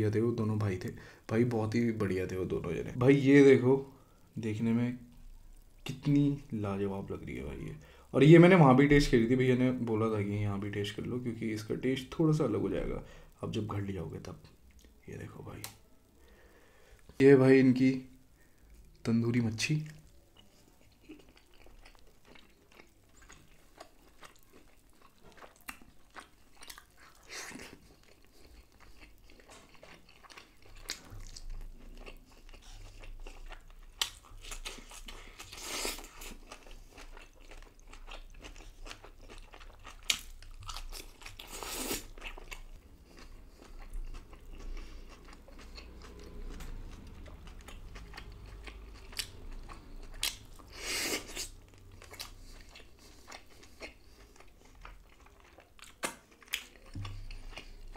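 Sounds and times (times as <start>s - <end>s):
person chewing and biting: 19.9s - 57.9s.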